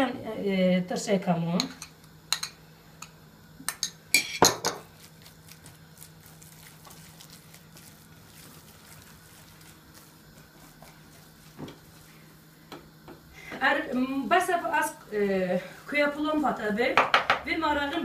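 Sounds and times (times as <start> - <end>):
utensil stirring thick filling: 4.9 - 12.8.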